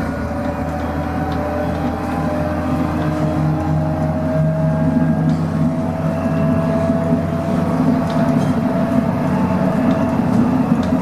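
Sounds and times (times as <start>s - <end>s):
steady whine: 0.0s - 11.0s
tram rolling rumble: 0.0s - 11.0s.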